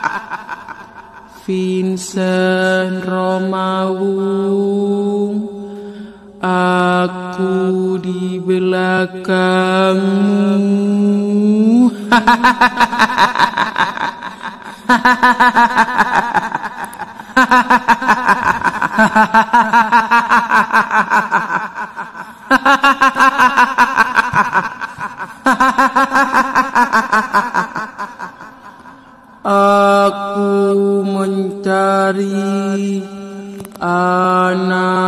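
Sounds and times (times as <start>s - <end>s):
woman laughing in rapid bursts: 0.0s - 1.4s, 12.1s - 29.0s.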